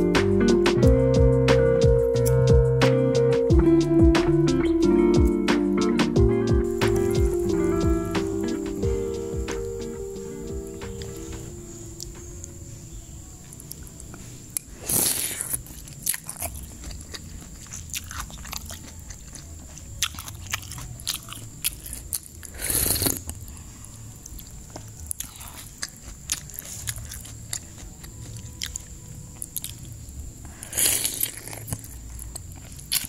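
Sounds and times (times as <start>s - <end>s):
person chewing and crunching: 13.6s - 33.0s.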